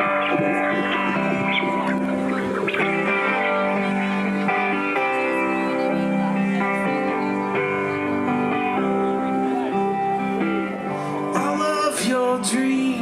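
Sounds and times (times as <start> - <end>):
rock guitar chords: 0.0 - 13.0.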